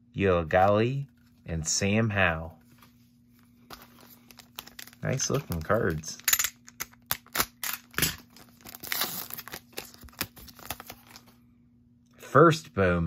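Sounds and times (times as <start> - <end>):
foil wrapper crinkling: 3.6 - 11.4
box cutter slitting foil pack: 7.0 - 10.9.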